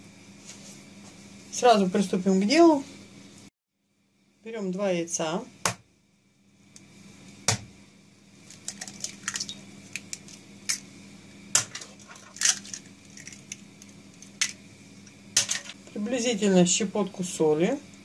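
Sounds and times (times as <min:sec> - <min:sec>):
faint steady hum: 0:00.0 - 0:18.0
eggshells crackling apart: 0:08.4 - 0:10.8, 0:11.6 - 0:14.6.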